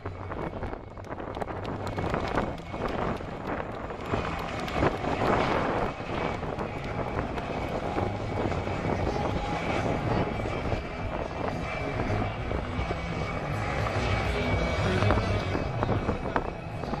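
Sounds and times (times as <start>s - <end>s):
helicopter engine whine: 0.0s - 17.0s
helicopter rotor beat: 0.0s - 17.0s.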